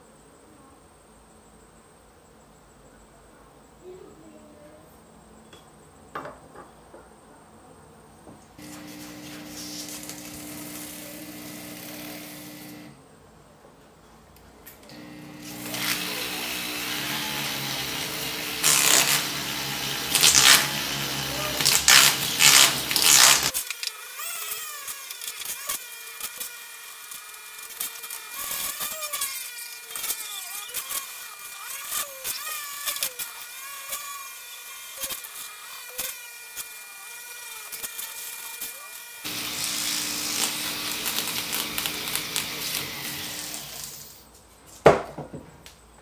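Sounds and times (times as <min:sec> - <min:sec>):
rotary tool grinding metal: 0:08.6 - 0:12.9, 0:14.9 - 0:44.2.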